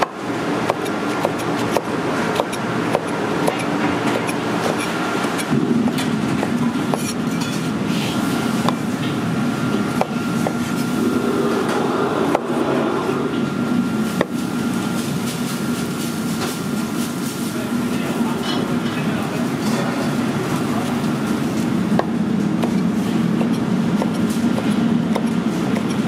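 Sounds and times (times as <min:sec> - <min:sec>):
low mechanical rumble: 0:00.0 - 0:18.1.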